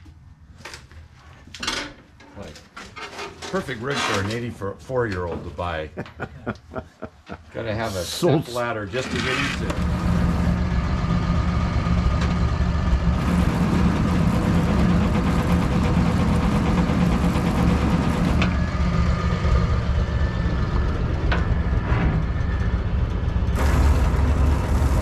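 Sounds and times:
truck engine idling: 9.5s - 25.0s.

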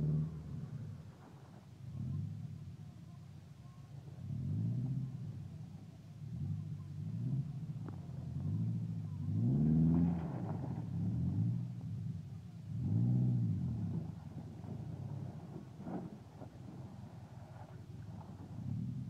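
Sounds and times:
pickup truck engine revving: 6.3s - 19.0s.

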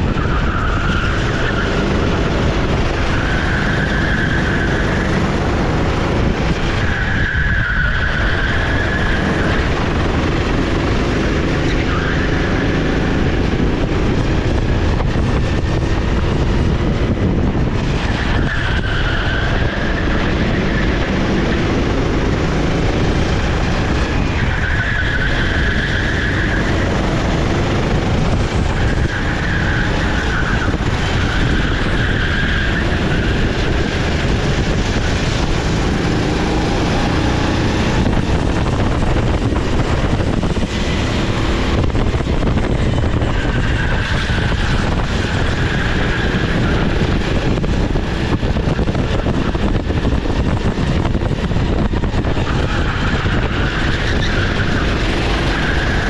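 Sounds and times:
tyre squeal: 0.0s - 5.6s, 6.6s - 10.6s, 17.8s - 21.6s, 23.4s - 27.6s, 28.3s - 38.1s, 39.5s - 48.0s, 52.2s - 56.0s
kart engine running hard: 0.0s - 56.0s.

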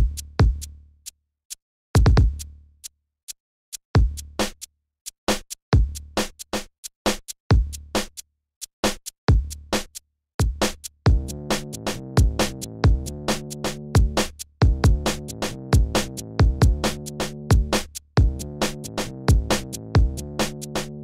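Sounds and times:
deep booming kick drums: 0.0s - 0.7s, 2.0s - 2.4s, 4.0s - 4.2s, 5.8s - 6.0s, 9.3s - 9.6s, 10.4s - 11.6s, 12.2s - 13.3s, 14.0s - 20.4s.

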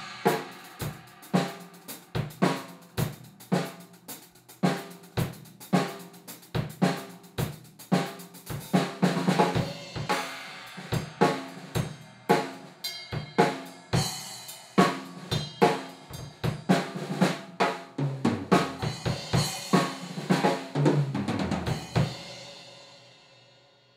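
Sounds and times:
drum kit beat: 0.0s - 23.0s.

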